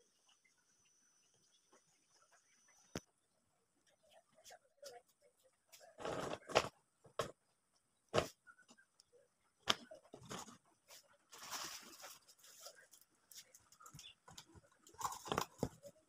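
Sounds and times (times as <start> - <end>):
paper rustle: 10.2 - 15.6.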